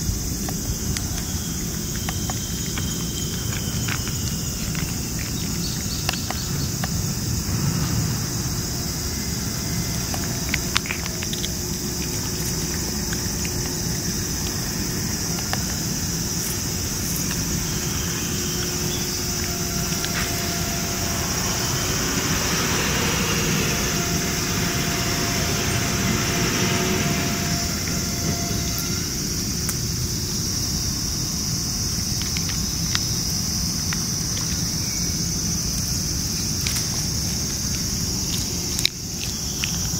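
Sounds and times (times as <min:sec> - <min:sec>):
cat chewing food from metal bowl: 0:00.0 - 0:07.0, 0:09.1 - 0:20.5
high insect drone: 0:00.0 - 0:39.9
low rumble: 0:03.1 - 0:31.0.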